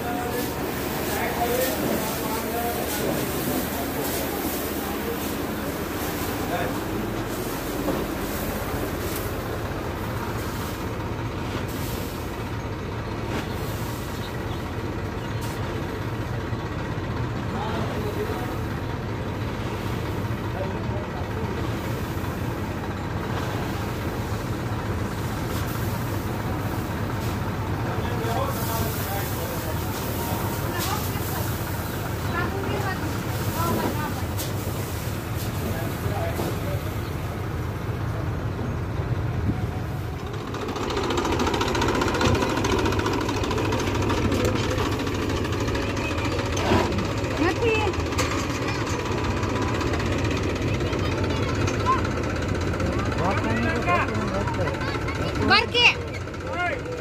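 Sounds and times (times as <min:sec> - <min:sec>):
combine harvester engine droning: 0:00.0 - 0:57.0.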